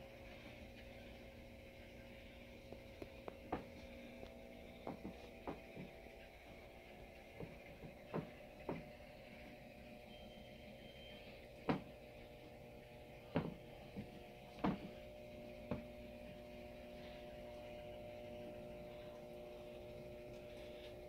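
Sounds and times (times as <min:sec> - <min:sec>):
faint electrical hum: 0:00.0 - 0:21.0.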